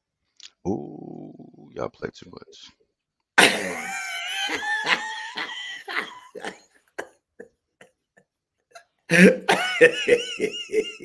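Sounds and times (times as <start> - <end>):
men laughing: 3.4 - 8.0, 8.7 - 11.0.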